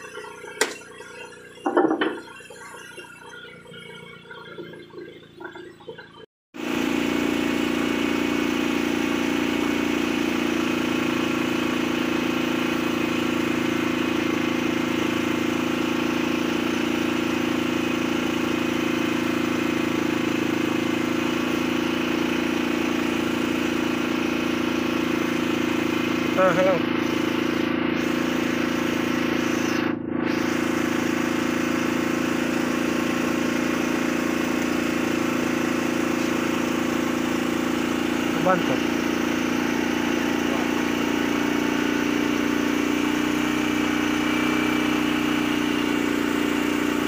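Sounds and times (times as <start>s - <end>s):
boat engine running: 0.0s - 47.0s
knocks on wooden deck: 1.7s - 2.2s.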